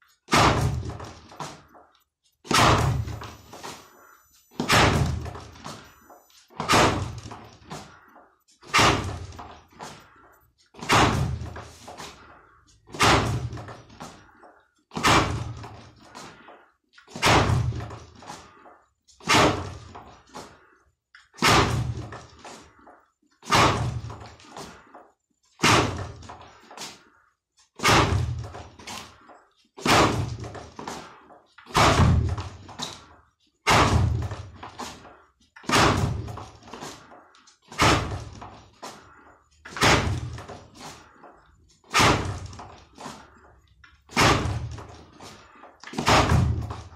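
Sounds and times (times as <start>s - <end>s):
fist striking wooden board: 0.3s - 1.0s, 2.5s - 3.2s, 4.6s - 5.4s, 6.6s - 7.3s, 8.7s - 9.4s, 10.8s - 11.6s, 12.9s - 13.7s, 15.0s - 15.7s, 17.2s - 17.9s, 21.4s - 22.1s, 23.5s - 24.2s, 25.6s - 26.2s, 27.8s - 28.6s, 29.8s - 30.5s, 31.7s - 32.6s, 33.7s - 34.5s, 35.6s - 36.4s, 37.7s - 38.4s, 39.7s - 40.5s, 41.9s - 42.6s, 44.1s - 44.9s, 45.9s - 46.9s.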